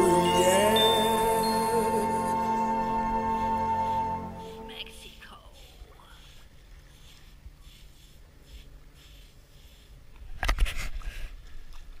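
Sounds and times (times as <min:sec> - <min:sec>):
stick scratching through sand: 0:04.4 - 0:11.1
rustling on microphone: 0:04.9 - 0:12.0.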